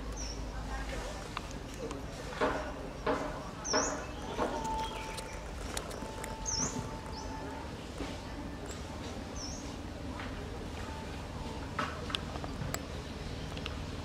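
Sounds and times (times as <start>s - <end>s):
small bird chirping: 3.6s - 7.4s.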